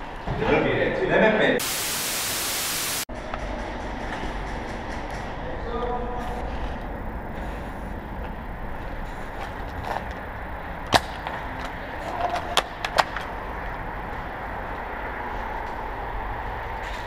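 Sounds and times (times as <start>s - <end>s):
background hiss: 1.6s - 3.1s.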